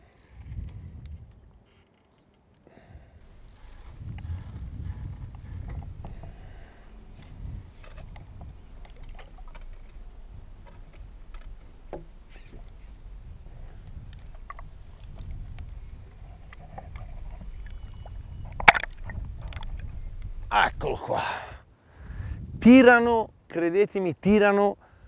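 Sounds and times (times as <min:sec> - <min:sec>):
steady low rumble: 0:03.0 - 0:21.0
water sloshing and splashing: 0:07.7 - 0:13.0.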